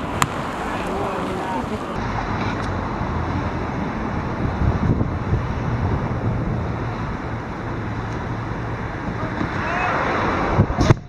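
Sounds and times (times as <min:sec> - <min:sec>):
steady outdoor hiss: 0:00.0 - 0:11.0
wind rumbling on microphone: 0:00.0 - 0:11.0.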